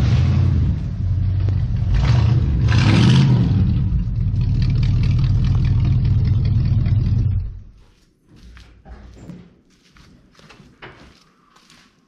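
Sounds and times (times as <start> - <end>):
car engine idling: 0.0 - 2.7, 3.5 - 7.7
engine revving: 0.0 - 7.7.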